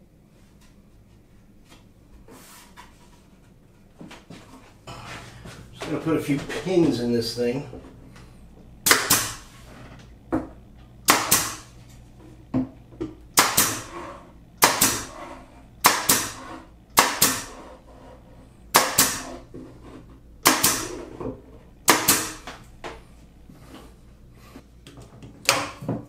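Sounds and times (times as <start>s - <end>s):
pin nailer firing into wood: 8.8s - 9.5s, 11.0s - 11.7s, 13.3s - 13.9s, 14.6s - 15.1s, 15.8s - 17.6s, 18.7s - 19.4s, 20.4s - 21.0s, 21.8s - 22.5s, 25.5s - 25.9s.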